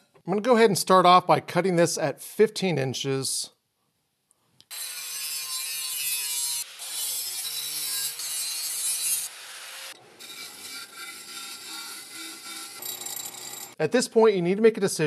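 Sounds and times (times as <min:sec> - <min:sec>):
angle grinder cutting steel pipe: 0:04.7 - 0:13.8
disc sander grinding metal: 0:04.7 - 0:13.8.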